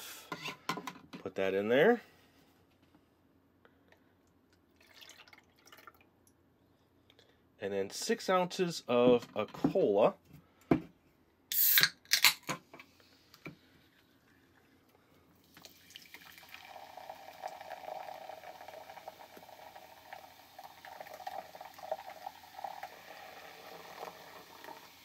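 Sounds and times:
fizzy soda pouring into glass: 4.8s - 6.0s, 11.5s - 11.8s, 15.4s - 25.0s
can clicking: 11.5s - 12.4s.

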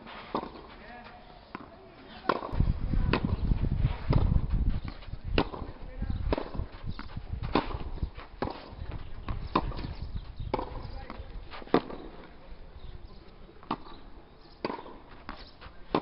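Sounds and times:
tennis ball struck by rackets: 0.3s - 0.7s, 1.5s - 3.4s, 4.0s - 12.4s, 13.6s - 14.0s, 14.6s - 16.0s.

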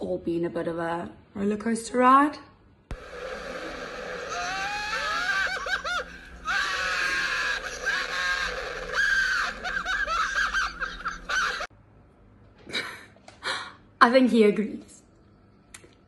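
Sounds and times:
man screaming and yelling: 3.9s - 9.7s
laughter: 9.3s - 11.7s.

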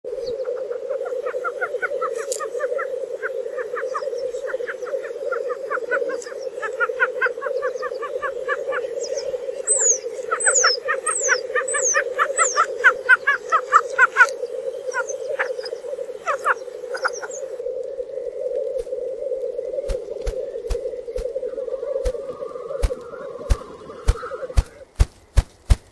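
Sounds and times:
low cooing hum: 0.1s - 24.9s
rapid short bird calls: 1.0s - 17.6s, 20.3s - 25.9s
quick descending whistles: 22.0s - 24.8s.

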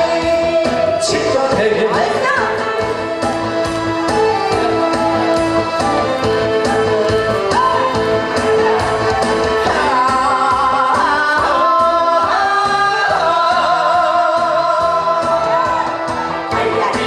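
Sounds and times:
amplified accompaniment with steady beat: 0.0s - 17.0s
woman singing into a microphone: 9.6s - 17.0s.

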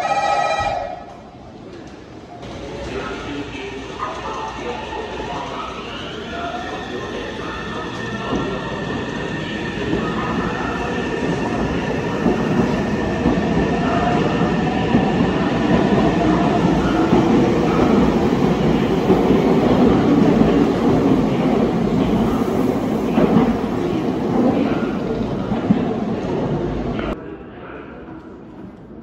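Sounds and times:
train rumble and wheel clatter: 0.6s - 27.2s.

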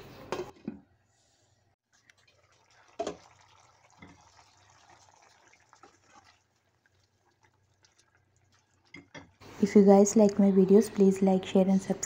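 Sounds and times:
sauce simmering in a pan: 1.8s - 9.6s.

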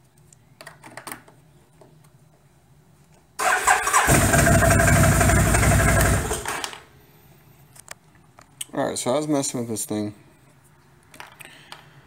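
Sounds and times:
electric starter cranking: 3.4s - 6.8s
engine running: 3.9s - 6.7s.

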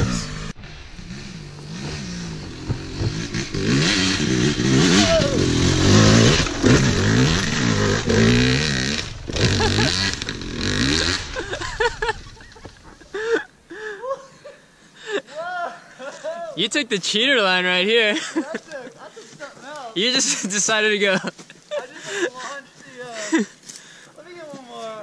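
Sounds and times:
dirt bike revving: 0.0s - 13.0s.

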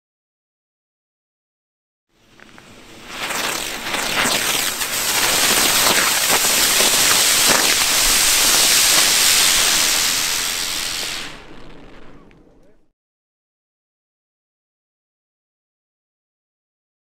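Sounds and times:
firework hissing and crackling: 2.2s - 12.4s.

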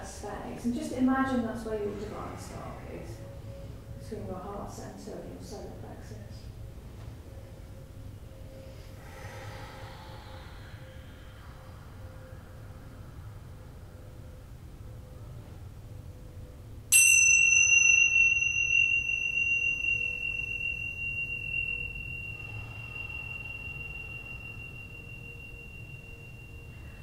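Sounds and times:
small metal chime ringing: 16.9s - 27.0s.

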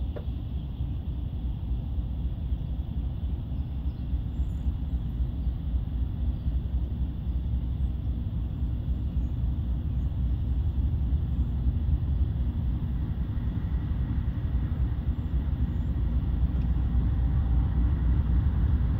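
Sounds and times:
distant diesel train rumble: 0.0s - 18.9s.

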